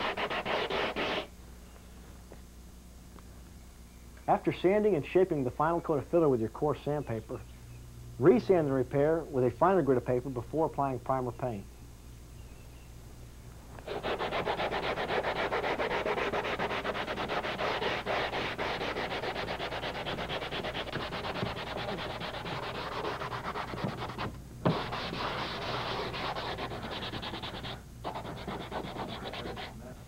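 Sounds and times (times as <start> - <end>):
hand sanding strokes: 0.0 - 1.3, 13.8 - 29.8.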